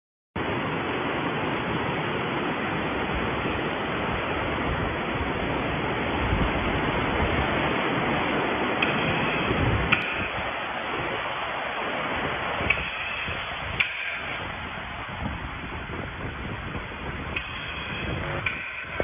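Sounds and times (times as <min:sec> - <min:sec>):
factory background hiss: 0:12.6 - 0:14.5, 0:17.4 - 0:19.0.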